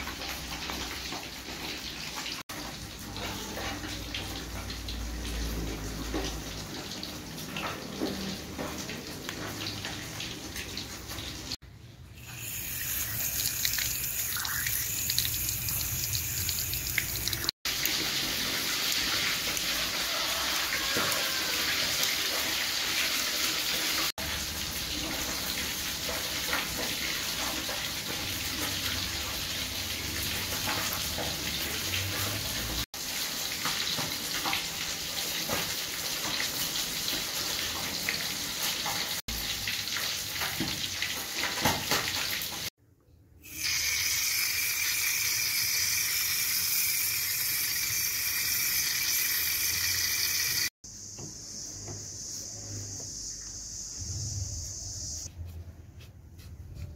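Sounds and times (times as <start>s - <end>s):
tap water pouring: 12.2s - 42.7s
steady hiss: 50.9s - 55.3s.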